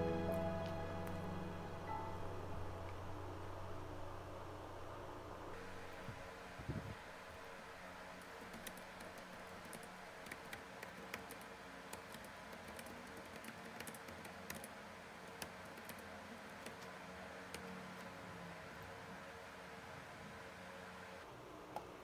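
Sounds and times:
background hum and hiss: 0:00.0 - 0:22.0
computer keyboard typing: 0:08.3 - 0:14.7, 0:15.3 - 0:16.9.

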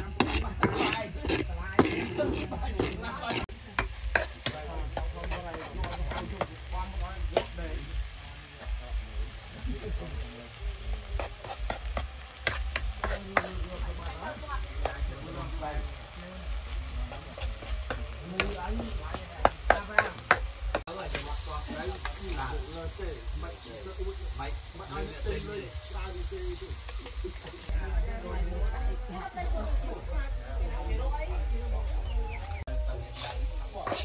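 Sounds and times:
metal ladle scraping wok: 0:00.0 - 0:06.7, 0:11.2 - 0:13.7, 0:33.0 - 0:34.0
food sizzling in hot oil: 0:00.0 - 0:31.4, 0:32.0 - 0:34.0.

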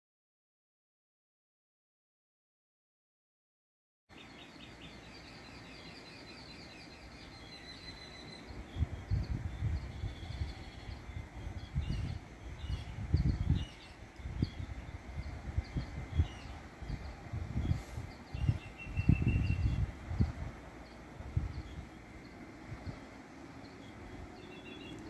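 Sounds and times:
birds chirping: 0:04.1 - 0:25.0
wind buffeting microphone: 0:06.3 - 0:25.0.

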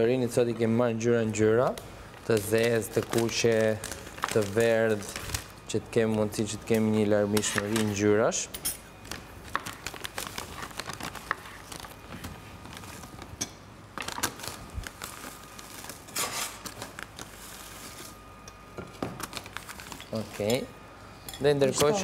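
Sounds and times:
plastic packaging crinkling: 0:01.6 - 0:06.8, 0:09.0 - 0:18.4, 0:19.0 - 0:20.5.

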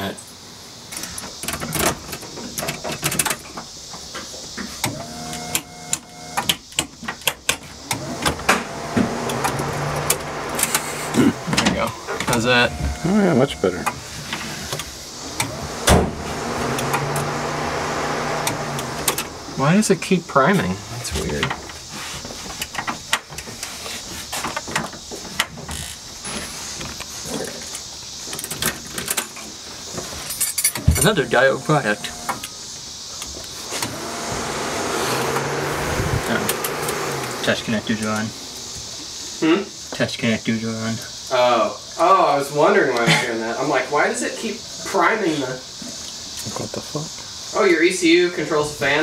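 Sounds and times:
steady high hiss: 0:00.0 - 0:49.0
electric fuel pump whining: 0:04.8 - 0:06.7, 0:07.6 - 0:19.9, 0:30.8 - 0:32.6, 0:33.2 - 0:39.4.

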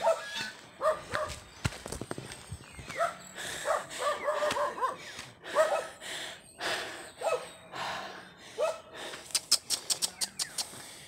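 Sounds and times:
sharp clicks: 0:09.3 - 0:10.8.

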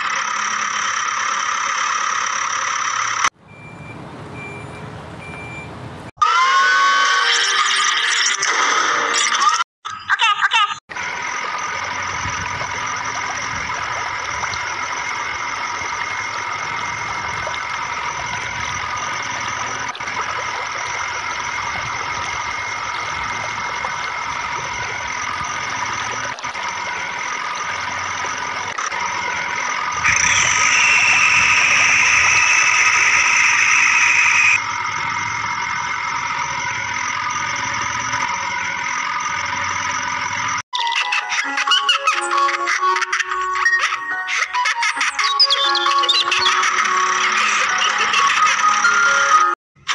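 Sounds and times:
engine drone with low rumble: 0:00.0 - 0:06.1, 0:10.9 - 0:40.6
high-pitched tone: 0:29.6 - 0:34.7, 0:40.8 - 0:49.6.

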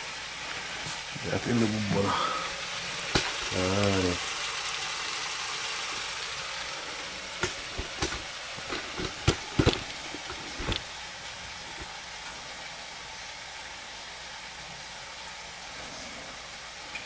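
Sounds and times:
steaks sizzling in a pan: 0:00.0 - 0:15.2
sharp pops and clicks: 0:03.0 - 0:03.6, 0:07.4 - 0:10.9.

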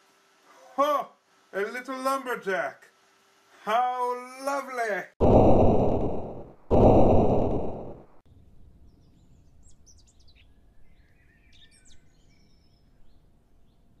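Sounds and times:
loud noisy burst: 0:05.2 - 0:08.2
birds chirping: 0:08.9 - 0:14.0.

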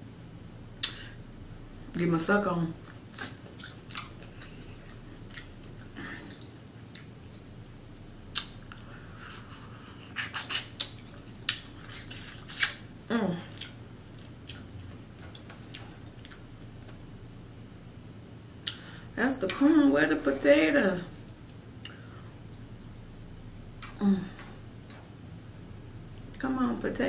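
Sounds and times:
wet eating clicks and smacks: 0:00.8 - 0:01.2, 0:02.8 - 0:07.6, 0:08.3 - 0:08.9, 0:10.0 - 0:12.9, 0:13.5 - 0:17.0.

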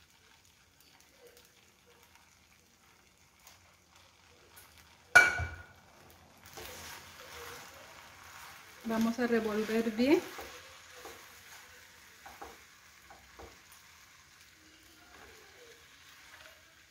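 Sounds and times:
spatula swishing sauce: 0:06.4 - 0:12.1.

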